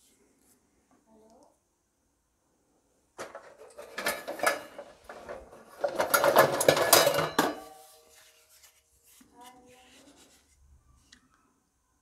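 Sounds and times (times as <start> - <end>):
utensils and dishes clattering: 3.2 - 8.1.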